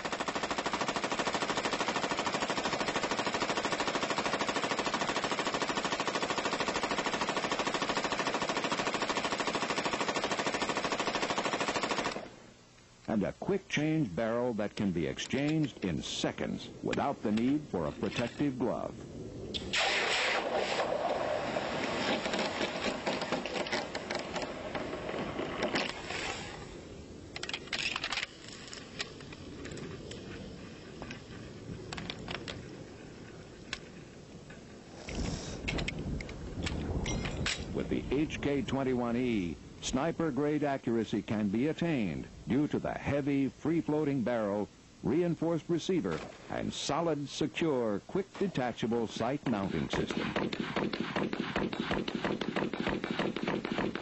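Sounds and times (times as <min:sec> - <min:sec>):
machine gun automatic burst: 0:00.0 - 0:12.3, 0:19.7 - 0:24.4, 0:49.6 - 0:54.0.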